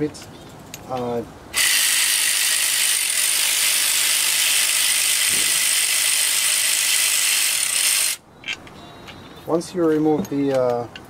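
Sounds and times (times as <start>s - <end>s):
electric ratchet running: 1.5s - 8.2s.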